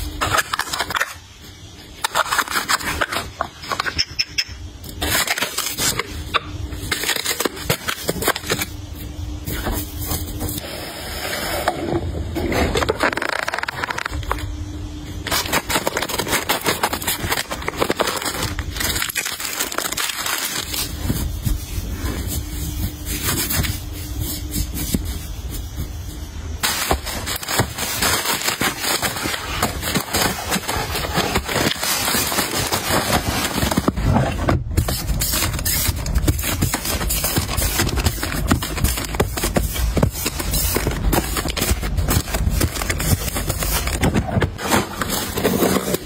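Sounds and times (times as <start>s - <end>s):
packaging and fabric rustling: 12.4s - 14.6s, 15.2s - 46.0s.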